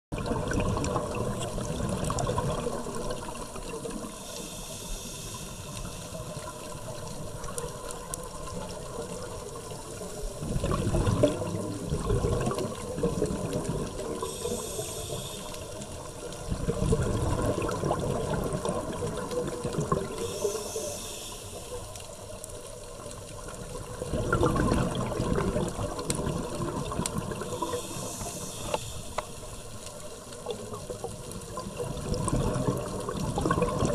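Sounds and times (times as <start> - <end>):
exhaled bubbles rumbling: 0.1 - 4.4, 6.1 - 20.9, 22.3 - 33.9
regulator inhale hiss: 3.1 - 7.6, 14.0 - 16.4, 20.0 - 22.4, 27.3 - 30.2.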